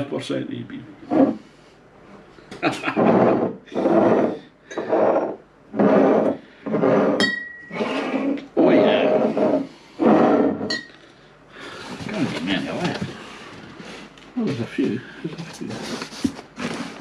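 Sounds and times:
glass clink: 0:07.2 - 0:07.8, 0:10.7 - 0:11.0.

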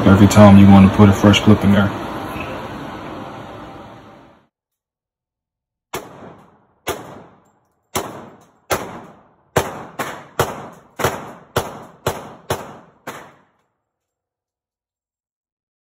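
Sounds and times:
echoing gunshots: 0:05.9 - 0:13.5.

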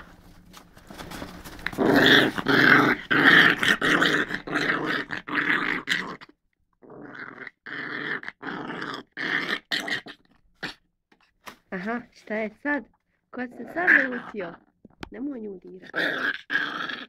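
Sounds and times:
dog growling: 0:01.7 - 0:10.8, 0:13.5 - 0:14.7, 0:15.8 - 0:17.0.

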